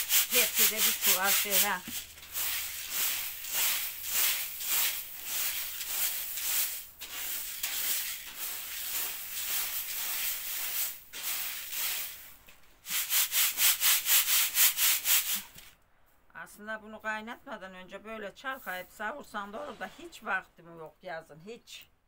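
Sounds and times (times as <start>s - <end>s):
grain rasping in a sieve: 0.0s - 15.7s.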